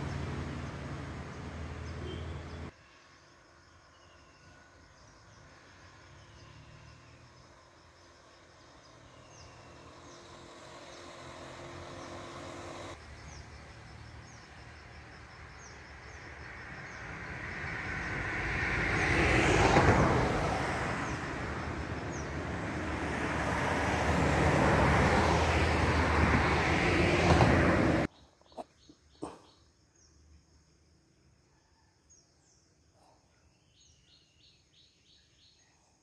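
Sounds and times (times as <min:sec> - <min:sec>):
vehicle passing by: 0:00.0 - 0:02.7, 0:05.5 - 0:28.1.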